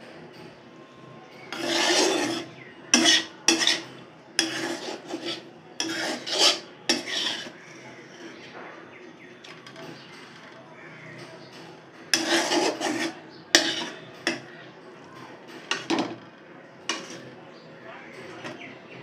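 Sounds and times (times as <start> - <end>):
metal spatula scraping metal pan: 1.4 - 8.5, 12.1 - 14.5, 15.6 - 16.2, 16.9 - 17.4.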